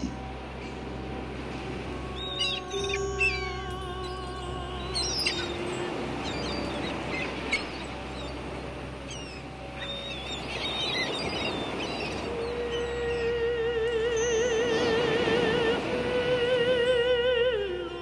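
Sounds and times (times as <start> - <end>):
wavering musical tone: 0.0 - 18.0
flock of birds calling: 2.2 - 13.2.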